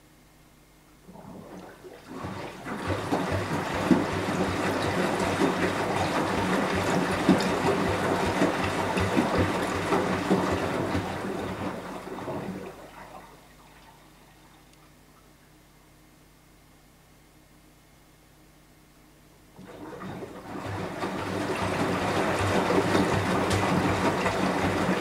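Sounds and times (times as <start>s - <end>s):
wet laundry sloshing: 1.0s - 14.6s, 19.6s - 25.0s
washing machine drum turning: 19.6s - 25.0s.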